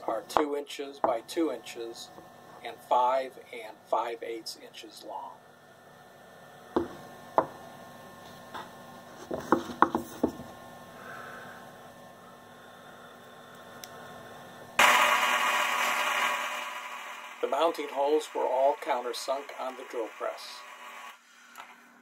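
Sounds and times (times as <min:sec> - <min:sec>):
faint steady hum: 0:00.0 - 0:22.0
loud hiss-like noise: 0:10.9 - 0:21.7.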